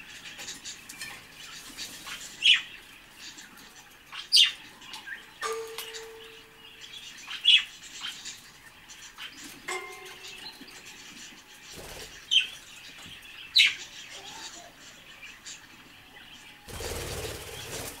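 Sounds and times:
wing flapping: 0:16.7 - 0:18.0.

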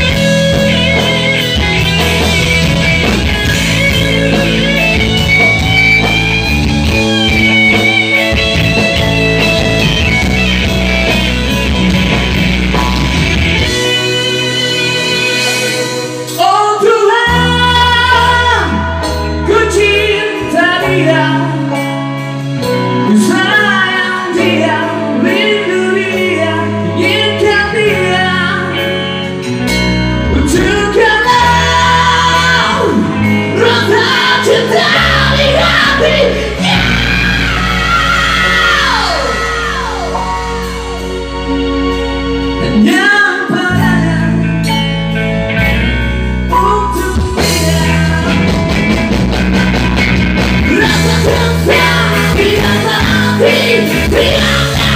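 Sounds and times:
electric bass: 0:00.0 - 0:54.9
live rock band playing: 0:00.0 - 0:54.9
person singing: 0:13.6 - 0:22.0, 0:22.6 - 0:29.1, 0:30.2 - 0:44.9, 0:46.5 - 0:49.0, 0:50.6 - 0:54.9.

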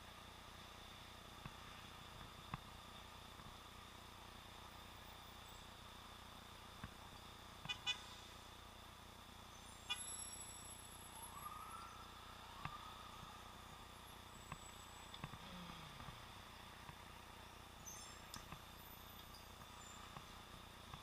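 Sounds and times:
muffled city traffic: 0:00.0 - 0:21.0
car horn toots: 0:07.7 - 0:08.0.

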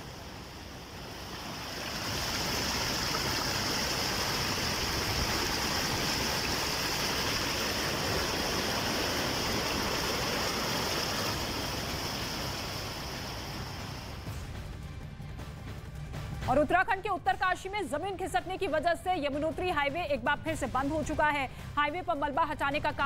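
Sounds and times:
floodwater rushing in a river: 0:00.0 - 0:14.3.

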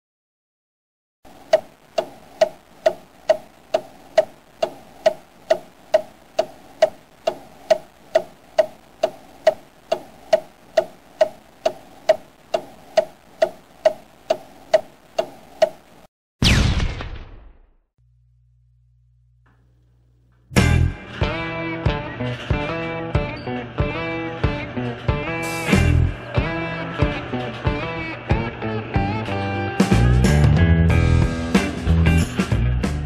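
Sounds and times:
clock ticking: 0:01.3 - 0:16.1
loud boom: 0:16.4 - 0:17.8.

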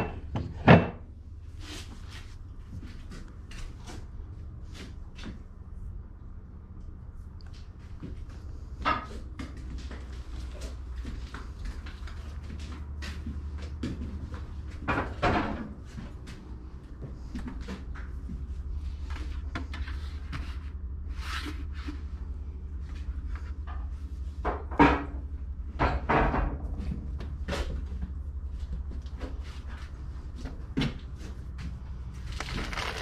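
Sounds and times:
steady low hum: 0:00.0 - 0:33.0
objects knocking and clinking on shelves: 0:32.3 - 0:33.0.

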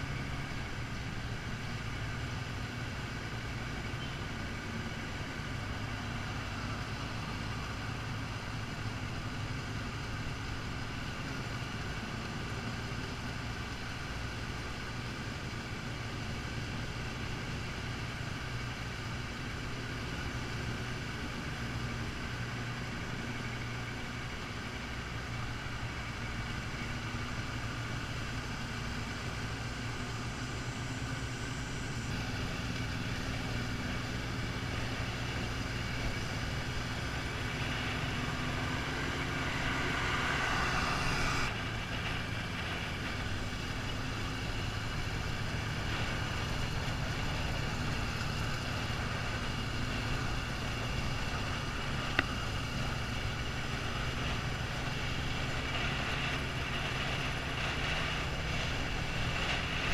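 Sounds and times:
road and wind noise: 0:00.0 - 0:59.9.

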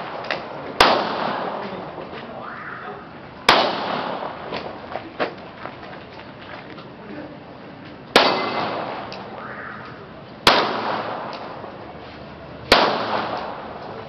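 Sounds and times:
handgun shots with echo: 0:00.1 - 0:01.6, 0:03.5 - 0:04.7, 0:08.2 - 0:09.3, 0:10.4 - 0:11.6, 0:12.7 - 0:13.8.

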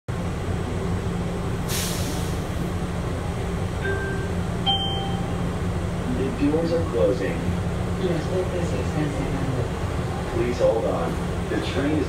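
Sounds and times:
train low hum: 0:00.1 - 0:12.0
brief hiss: 0:01.7 - 0:02.4
electronic door chime tones: 0:03.8 - 0:05.4.

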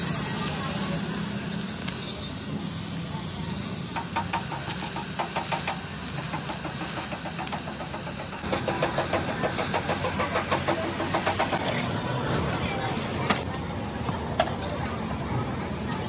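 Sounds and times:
steady high hiss: 0:00.0 - 0:11.6
engine knocking: 0:03.6 - 0:11.6.

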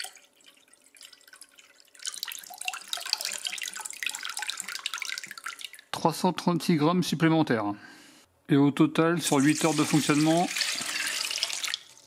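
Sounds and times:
water pouring into a bowl: 0:00.0 - 0:05.9, 0:09.3 - 0:12.0.

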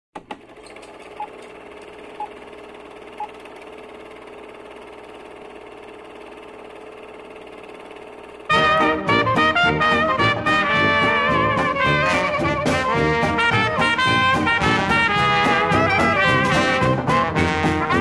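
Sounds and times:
projector whirr: 0:00.2 - 0:09.2
brass jazz music: 0:08.5 - 0:18.0.

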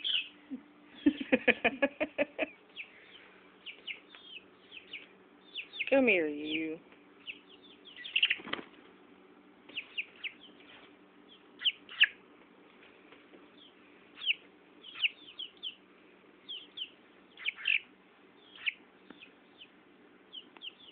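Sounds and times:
chick peeping: 0:00.0 - 0:00.4, 0:02.3 - 0:08.8, 0:09.7 - 0:12.2, 0:13.4 - 0:20.9.

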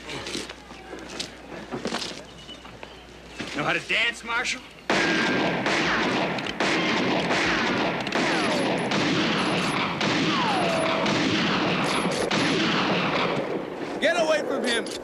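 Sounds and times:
gunfire volley: 0:04.9 - 0:13.7
ricochet whines: 0:05.0 - 0:13.5.

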